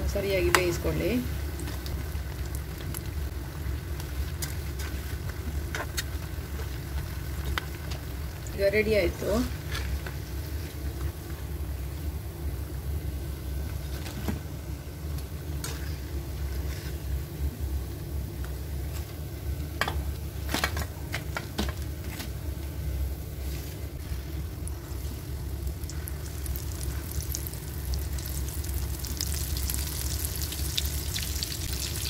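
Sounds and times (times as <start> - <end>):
batter sizzling in hot oil: 0.0 - 12.0, 23.4 - 32.0
steady low hum: 0.0 - 32.0.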